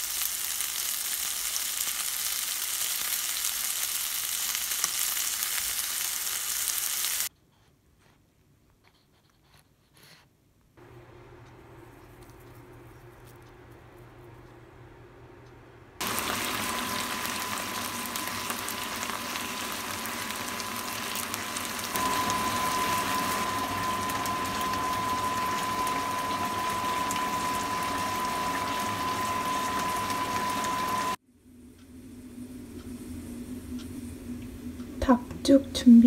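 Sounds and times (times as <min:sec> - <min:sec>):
steak sizzling in a pan: 0:00.0 - 0:07.3, 0:16.0 - 0:31.2
high whine: 0:16.0 - 0:35.2.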